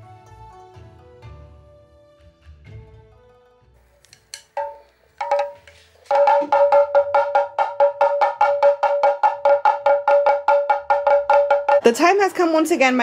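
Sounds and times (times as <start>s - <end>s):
background music: 0.0s - 13.0s
fast run of pitched percussive notes: 4.5s - 12.6s.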